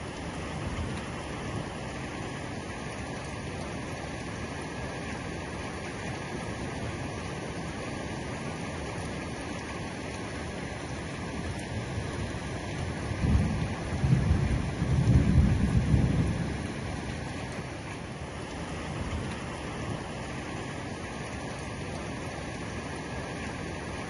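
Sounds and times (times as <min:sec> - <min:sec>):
heavy rain: 0:00.0 - 0:24.0
thunder rumbling: 0:12.8 - 0:17.1.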